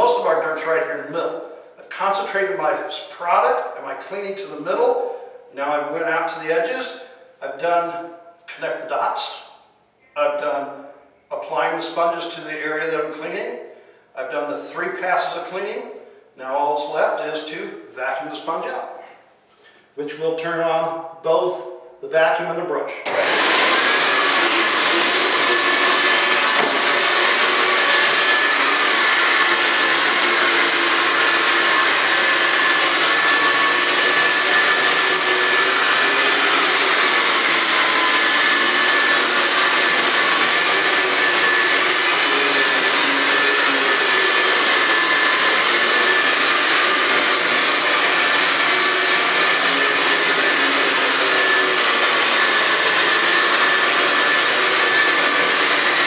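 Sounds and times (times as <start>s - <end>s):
carpet cleaning machine running: 23.0s - 56.0s.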